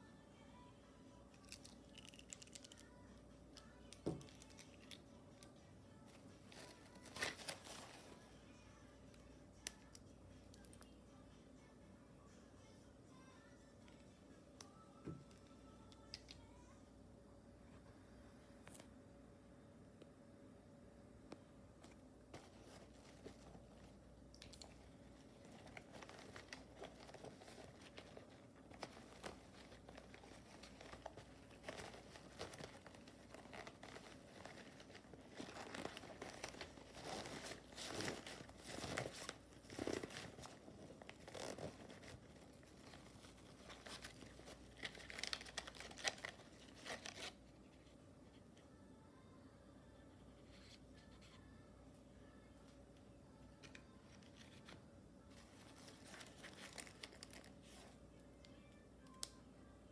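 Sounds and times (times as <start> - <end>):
pencil case rustling and crinkling: 6.0 - 8.3, 22.3 - 24.1, 24.7 - 47.9, 53.6 - 58.0.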